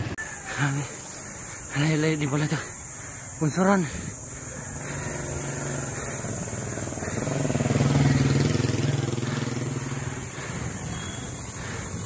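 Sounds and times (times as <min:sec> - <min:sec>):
vehicle engine passing by: 0:04.7 - 0:12.0.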